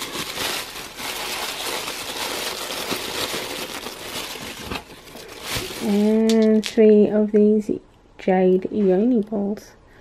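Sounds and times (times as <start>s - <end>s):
tissue paper rustling: 0.0s - 6.2s.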